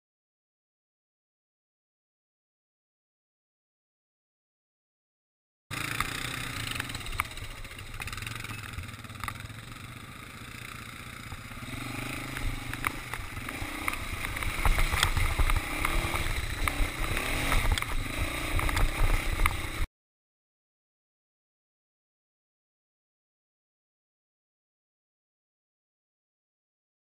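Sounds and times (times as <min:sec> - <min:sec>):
quad bike engine running: 0:05.7 - 0:19.9.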